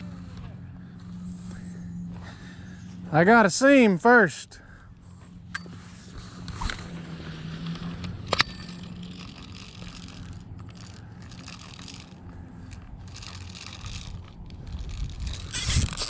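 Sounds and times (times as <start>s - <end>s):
fishing reel whirring: 5.5s - 16.0s
sharp reel click: 6.4s - 16.0s.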